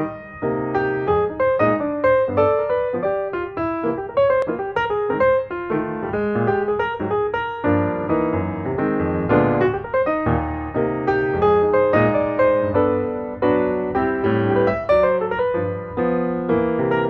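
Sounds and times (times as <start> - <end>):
piano music: 0.0 - 17.0.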